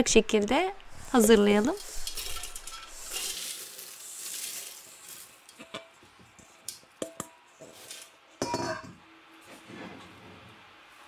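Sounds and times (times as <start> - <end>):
dry herbs pouring into metal bowl: 1.0 - 5.5.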